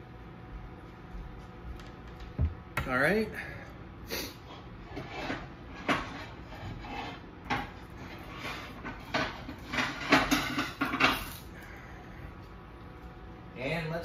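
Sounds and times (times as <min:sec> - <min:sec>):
dishes and utensils clinking: 0:08.5 - 0:11.3.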